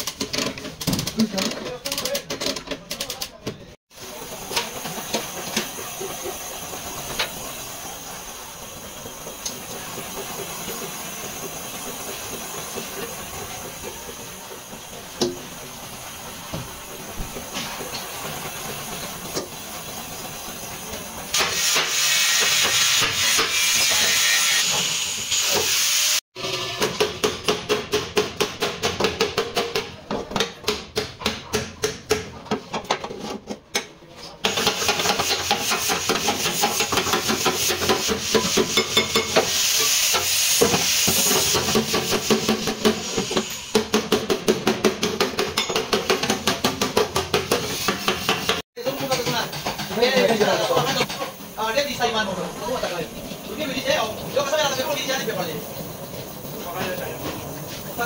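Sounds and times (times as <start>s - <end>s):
gas torch flame hissing: 4.0s - 26.2s, 34.5s - 44.0s.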